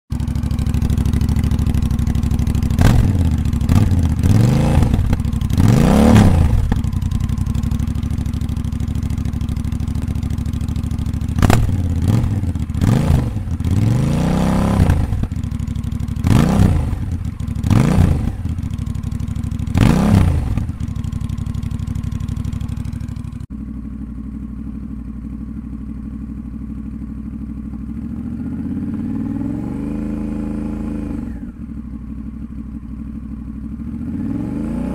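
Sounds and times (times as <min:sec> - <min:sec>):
muffled motorcycle idle: 0:00.1 - 0:34.2
motorcycle engine revving: 0:00.1 - 0:34.9.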